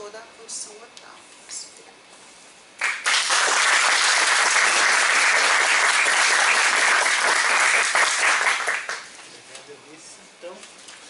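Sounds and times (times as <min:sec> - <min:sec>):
audience applauding: 0:02.8 - 0:09.1.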